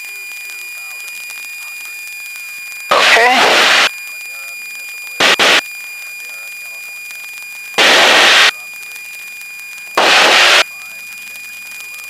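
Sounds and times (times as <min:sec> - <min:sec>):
high-pitched electrical whine: 0:00.0 - 0:12.0
loud bursts of static: 0:02.9 - 0:03.9, 0:05.2 - 0:05.6, 0:07.8 - 0:08.7, 0:10.0 - 0:10.9.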